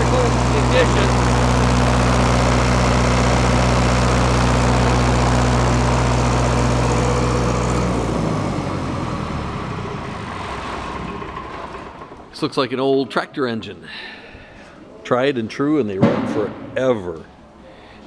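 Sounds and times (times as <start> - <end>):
diesel generator engine running: 0.0 - 12.8.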